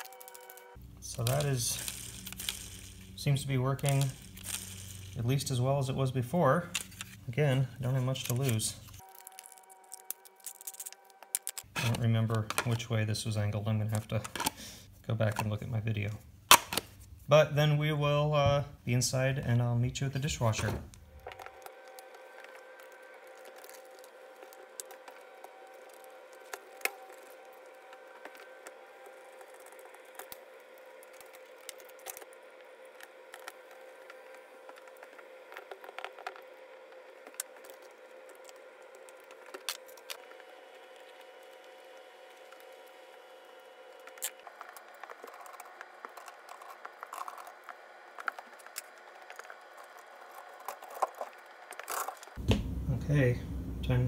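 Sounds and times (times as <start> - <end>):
plastic parts clicking and rattling: 0.0 - 3.2, 7.8 - 12.8, 13.9 - 14.6, 21.2 - 43.1, 43.9 - 52.4
faint steady hum: 0.0 - 54.0.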